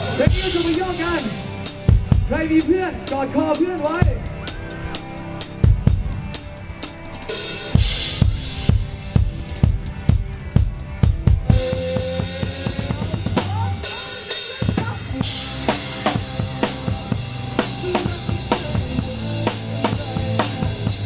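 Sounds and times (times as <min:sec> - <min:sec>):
drum kit with cymbals: 0:00.0 - 0:21.0
guitar and bass notes: 0:00.0 - 0:21.0.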